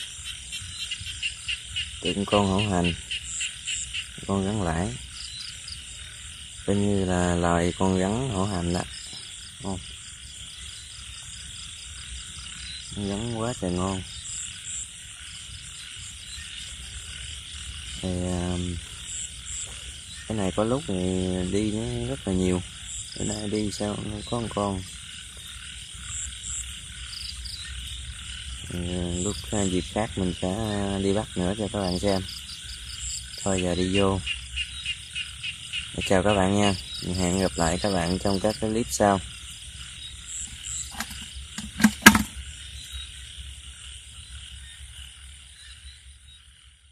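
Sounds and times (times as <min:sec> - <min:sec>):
frogs and insects chorus: 0:00.0 - 0:46.9
lid knocking on bucket: 0:40.9 - 0:42.4.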